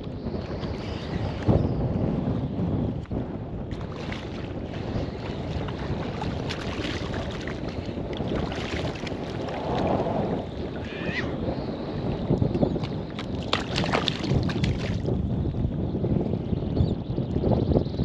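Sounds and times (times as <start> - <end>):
wind buffeting microphone: 0.0 - 18.0
shallow water lapping: 3.7 - 10.8, 13.2 - 15.0.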